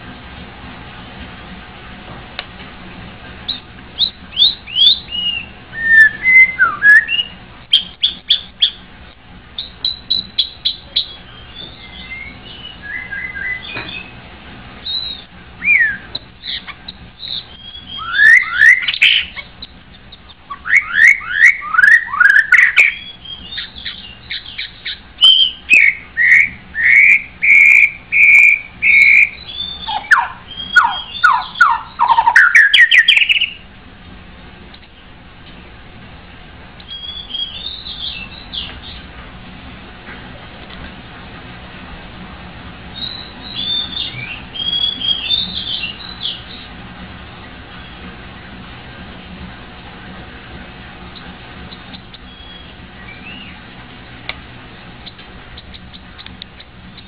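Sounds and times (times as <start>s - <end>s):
bird singing whistled song: 3.5s - 8.8s, 9.6s - 14.2s, 14.8s - 33.6s, 36.8s - 39.0s, 42.9s - 46.7s, 51.7s - 53.6s
sharp bird clicks: 29.0s - 33.5s, 51.1s - 53.3s, 55.0s - 57.0s.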